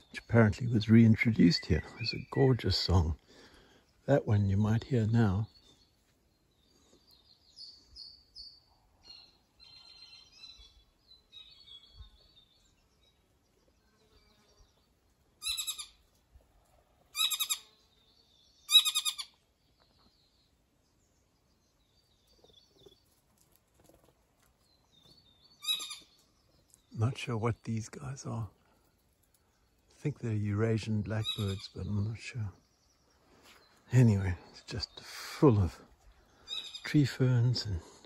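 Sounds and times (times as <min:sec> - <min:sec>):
songbirds warbling trills: 0:00.0 - 0:16.1, 0:17.1 - 0:38.0
harsh buzzy bird calls: 0:09.1 - 0:16.1, 0:17.1 - 0:20.0, 0:25.0 - 0:28.5, 0:29.4 - 0:38.0.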